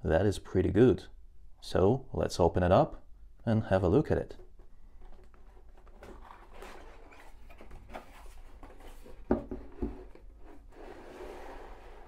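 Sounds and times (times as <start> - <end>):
cardboard lid scraping: 5.3 - 12.0.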